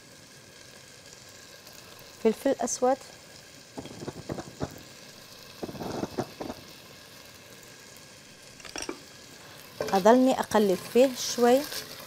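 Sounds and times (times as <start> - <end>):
rice sizzling in oil: 0.0 - 12.0
scratchy handling noise: 3.8 - 4.8, 5.6 - 6.7.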